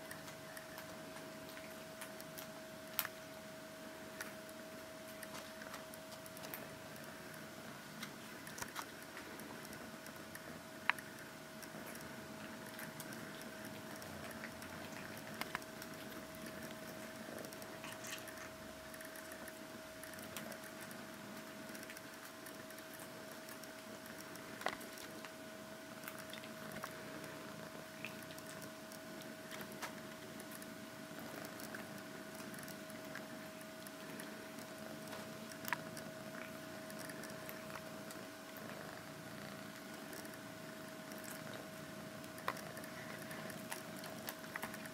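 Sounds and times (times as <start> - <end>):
steady hum: 0.0 - 44.9
faint clicks and taps: 28.0 - 38.7.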